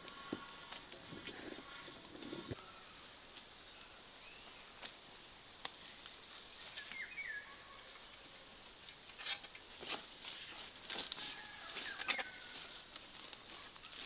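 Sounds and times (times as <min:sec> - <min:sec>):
bird chirp: 0:06.5 - 0:08.2.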